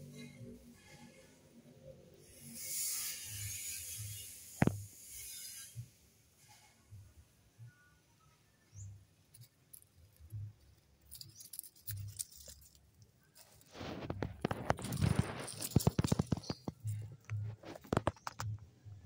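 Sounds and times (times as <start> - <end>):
leaves and gravel crunching: 9.4 - 18.0.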